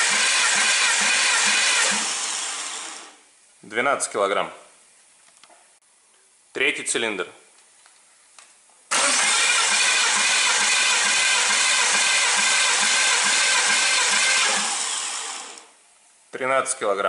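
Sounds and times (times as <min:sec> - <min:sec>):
starter motor cranking engine: 0:00.0 - 0:03.2, 0:08.9 - 0:15.7.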